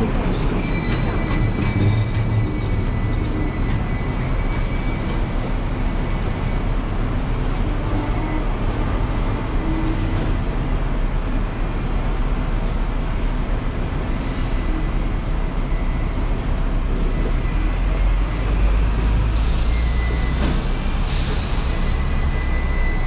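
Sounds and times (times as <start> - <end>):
tram rumbling: 0.0 - 23.0.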